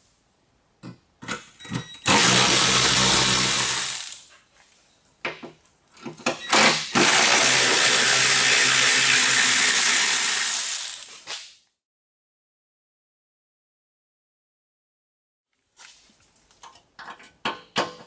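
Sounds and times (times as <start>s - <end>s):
cordless power tool spinning: 2.1s - 4.3s, 6.9s - 11.2s.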